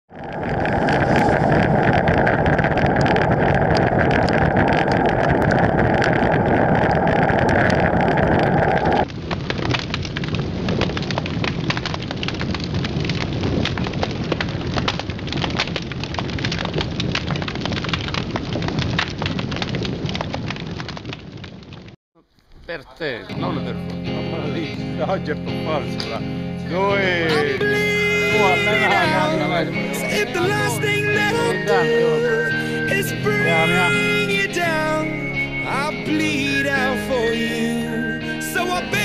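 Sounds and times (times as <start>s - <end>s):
loud rushing noise with crackling: 0.1s - 22.7s.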